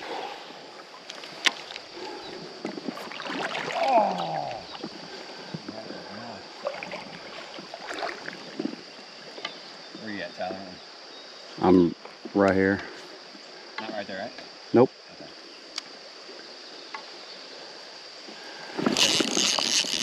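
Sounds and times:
creek water lapping around legs: 0.0 - 10.0, 15.4 - 20.0
fishing reel clicks: 18.9 - 20.0.

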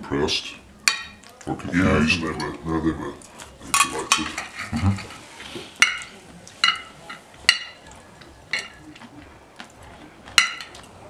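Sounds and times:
cutlery and crockery clinking: 0.8 - 2.6, 3.2 - 9.2, 10.2 - 11.0.

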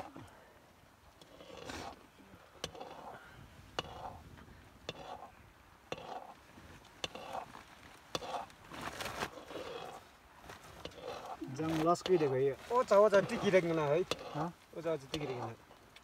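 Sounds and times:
ladle scraping pot: 2.6 - 3.1, 3.8 - 4.2, 4.9 - 5.3, 5.9 - 6.3, 7.0 - 7.5, 8.1 - 8.5, 10.8 - 12.4, 13.0 - 14.5, 15.1 - 15.6.

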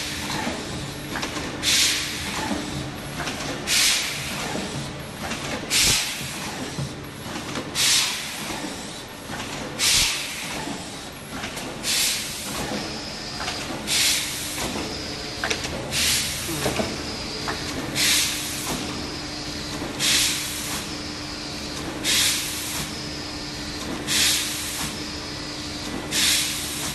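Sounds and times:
machine running: 11.4 - 23.6.

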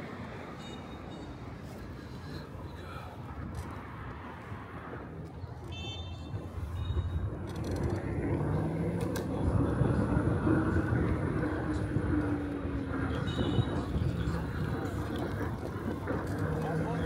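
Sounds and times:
street traffic rumble: 0.0 - 17.0
motor vehicle passing: 6.4 - 17.0.

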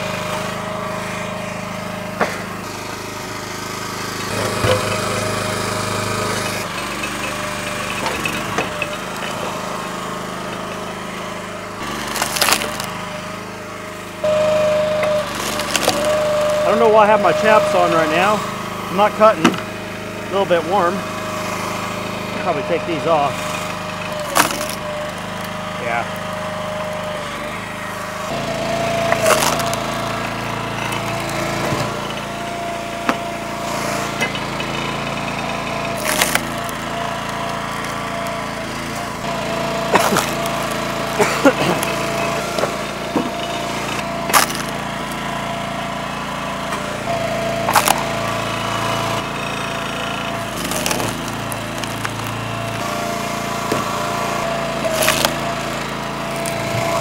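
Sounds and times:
log splitter engine drone: 0.0 - 57.0
wood cracking as it splits: 11.8 - 13.4, 15.3 - 20.4, 21.1 - 28.3, 29.0 - 32.0, 35.9 - 45.3, 47.6 - 57.0
steady whine: 14.2 - 34.4.

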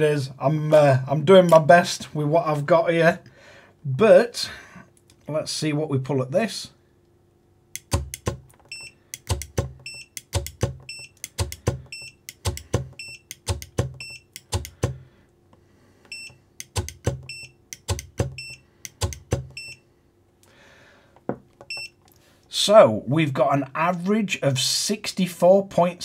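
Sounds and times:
servo knocking against metal arm: 7.8 - 15.0.

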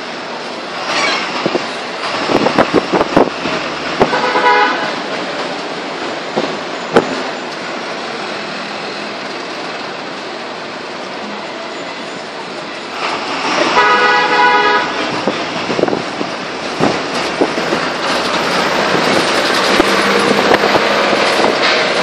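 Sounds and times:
traffic noise: 0.0 - 22.0
car horn toot: 4.0 - 4.9, 13.7 - 15.0
sharp knocks and rattles: 16.8 - 22.0.

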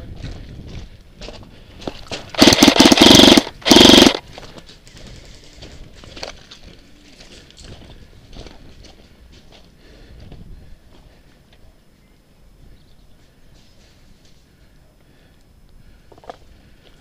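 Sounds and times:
airsoft rifle full-auto bursts: 2.3 - 4.2.

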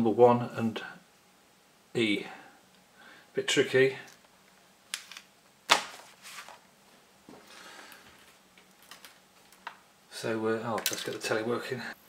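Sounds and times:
soft rustle: 6.0 - 9.7.

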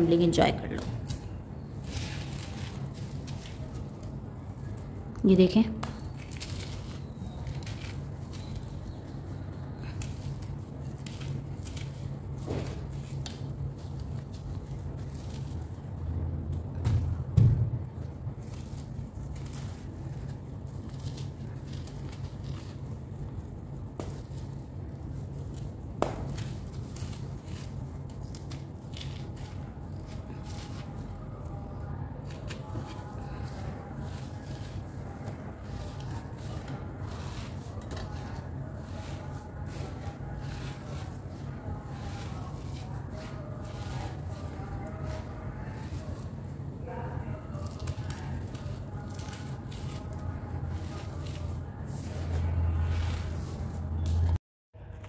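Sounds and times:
steady low hum: 0.0 - 55.0
sand and soil grains rustling: 32.7 - 53.9.

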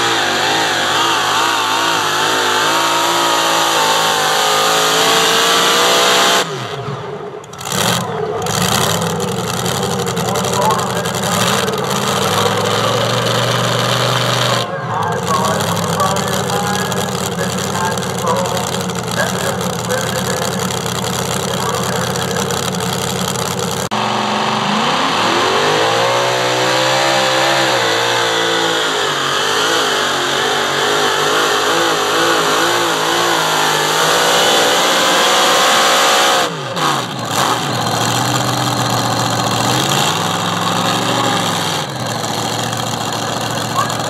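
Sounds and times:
engine revving: 0.0 - 44.0
supercharged engine at full throttle: 0.0 - 44.0
engine idling: 6.4 - 24.1, 36.5 - 44.0.

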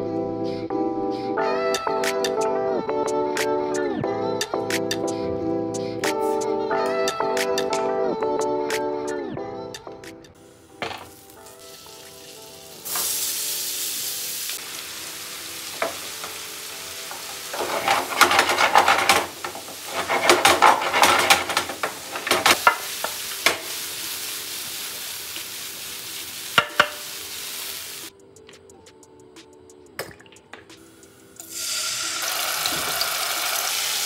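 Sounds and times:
faint background music: 0.0 - 34.0
food sizzling in oil: 10.6 - 28.1, 31.4 - 34.0
spatula scraping pan: 15.8 - 23.7.

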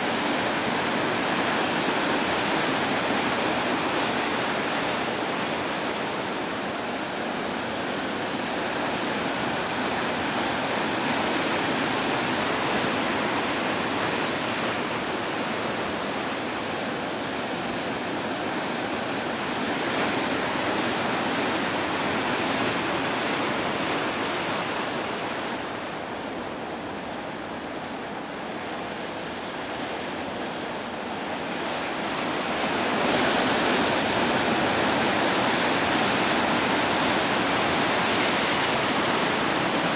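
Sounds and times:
ocean surf breaking: 17.4 - 39.9.

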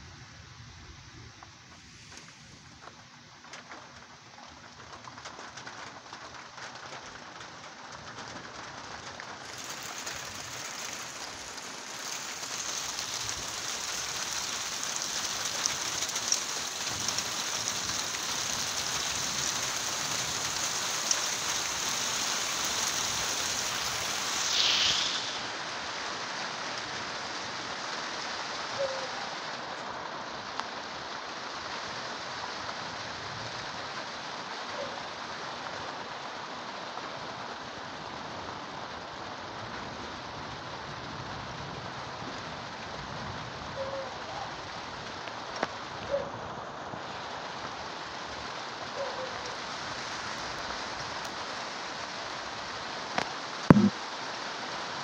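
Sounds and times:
rain falling: 0.0 - 55.0
brief loud hiss: 1.7 - 2.8, 22.6 - 25.7
sharp drop ticks: 53.7 - 53.9.

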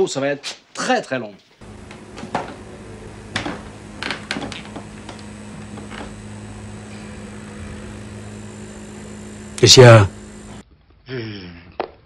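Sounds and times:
low electrical hum: 1.6 - 10.6.

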